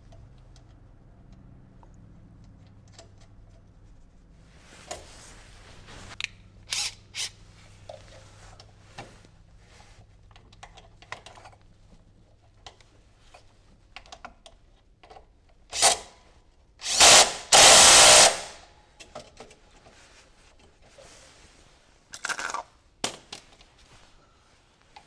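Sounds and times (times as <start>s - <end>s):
cordless driver running: 16.8s - 18.6s.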